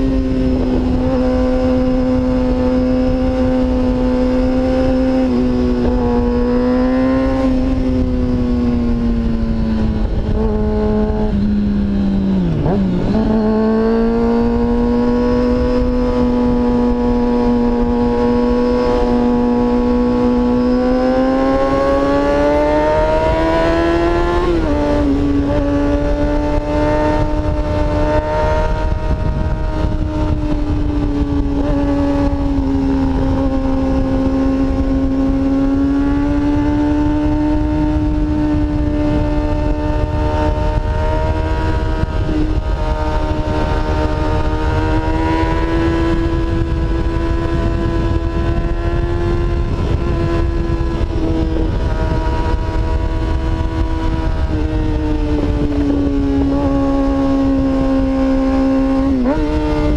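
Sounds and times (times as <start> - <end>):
motorcycle engine at high revs: 0.0 - 59.9
rush of wind: 0.0 - 59.9.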